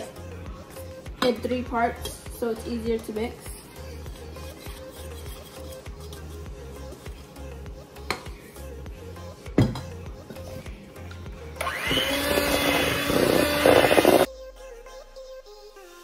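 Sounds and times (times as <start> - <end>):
background music: 0.0 - 16.0
electric hand mixer beating dough: 11.6 - 14.3.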